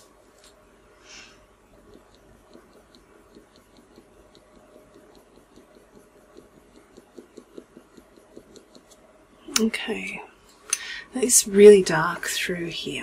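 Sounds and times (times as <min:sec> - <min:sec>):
pencil scratching on paper: 0:01.3 - 0:09.1.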